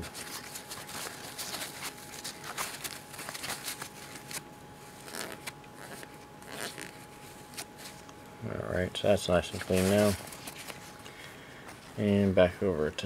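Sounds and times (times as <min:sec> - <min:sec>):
paper towel rubbing on metal threads: 0:09.4 - 0:10.9.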